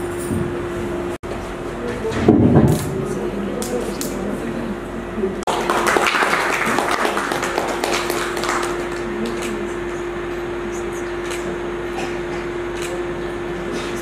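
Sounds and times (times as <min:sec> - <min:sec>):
electrical hum: 0:00.0 - 0:14.0
crowd murmur: 0:06.5 - 0:14.0.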